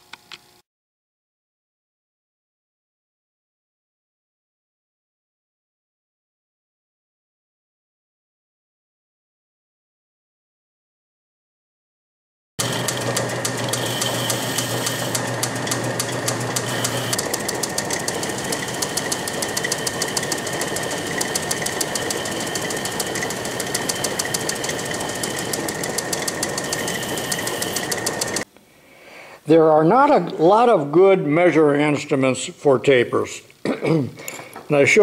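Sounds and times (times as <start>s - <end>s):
metal lathe running: 12.6s - 28.4s
rapid even ticking: 12.6s - 28.4s.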